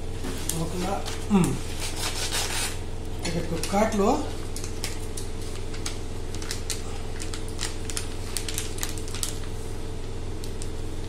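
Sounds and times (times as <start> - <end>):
steady low hum: 0.0 - 11.0
plastic packet crinkling: 3.3 - 9.7.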